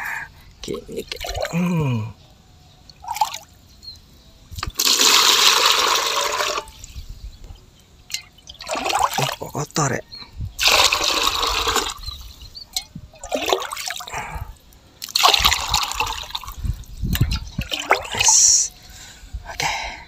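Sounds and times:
water pouring into plastic bucket: 4.6s - 7.0s, 8.6s - 9.5s, 10.6s - 12.4s, 13.2s - 14.1s, 15.0s - 16.6s, 17.2s - 18.5s.

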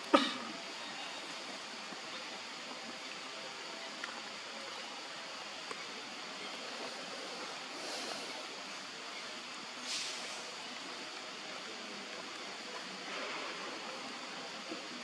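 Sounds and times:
rushing background noise: 0.0s - 15.0s
bright hiss: 5.4s - 11.5s.

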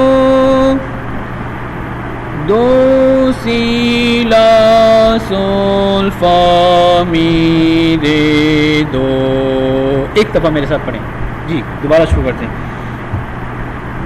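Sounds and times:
man singing sustained notes: 0.0s - 1.0s, 2.4s - 10.2s.

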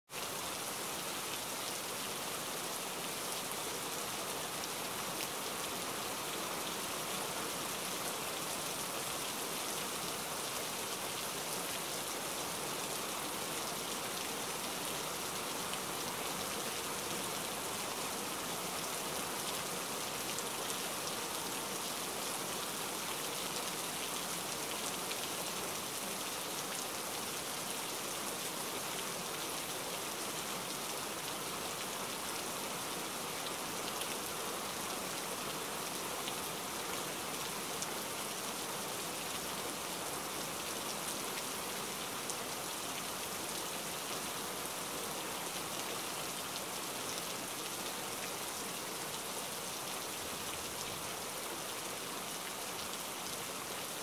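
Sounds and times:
rain patter on woodland floor: 0.0s - 54.0s.

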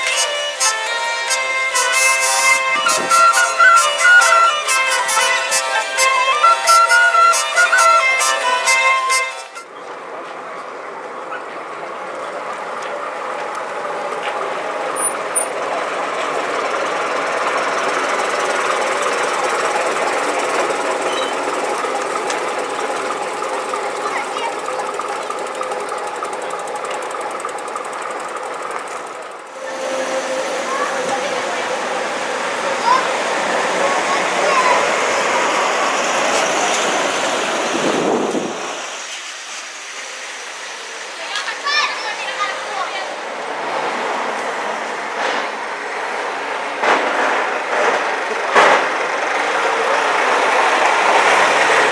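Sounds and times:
coach driving past: 0.0s - 39.5s
bus diesel engine clattering: 0.0s - 51.9s.

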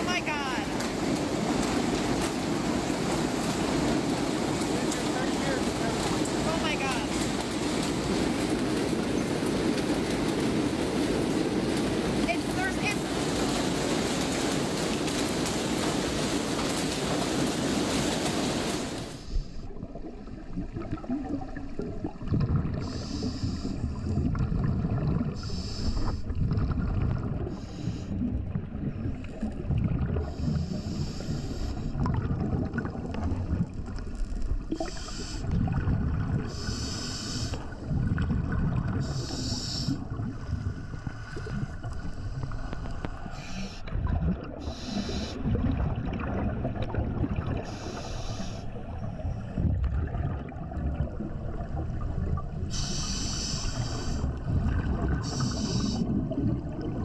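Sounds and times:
underwater bubbles rumble: 0.0s - 57.0s
scuba regulator hiss: 22.9s - 23.7s, 25.4s - 26.2s, 30.4s - 31.9s, 34.8s - 35.4s, 36.5s - 37.6s, 39.0s - 40.0s, 43.3s - 43.9s, 44.6s - 45.4s, 47.6s - 48.7s, 52.7s - 54.3s, 55.2s - 56.1s.

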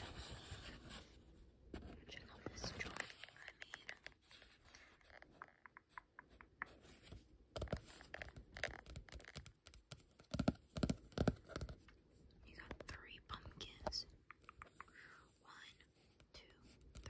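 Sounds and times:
fingertips tapping on card: 5.2s - 11.9s.

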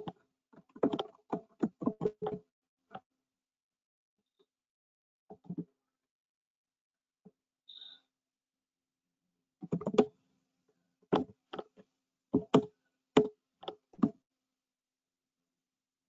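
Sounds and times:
keyboard and mouse clicks: 9.6s - 10.1s.

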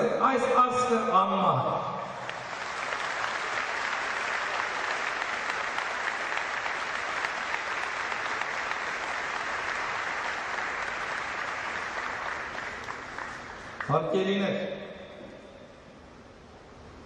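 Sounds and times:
audience applauding: 2.2s - 14.0s.

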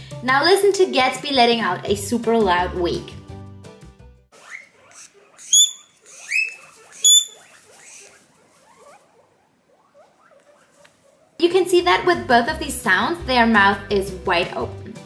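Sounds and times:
guinea pig wheeking loudly: 4.3s - 11.4s.

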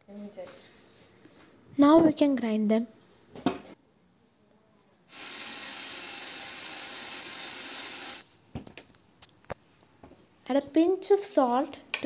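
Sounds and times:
mixer grinder running: 5.1s - 8.2s.

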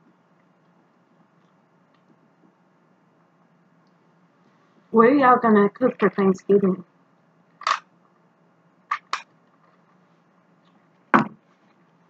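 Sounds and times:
cup knocking on table: 11.2s - 11.4s.

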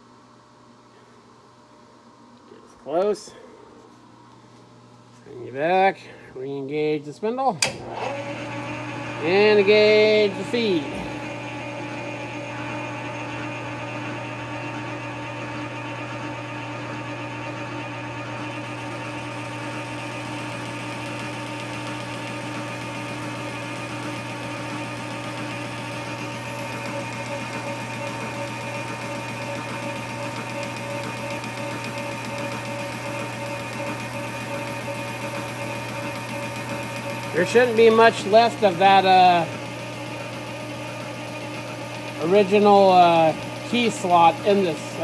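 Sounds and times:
metal lathe hum and whine: 7.8s - 45.0s.

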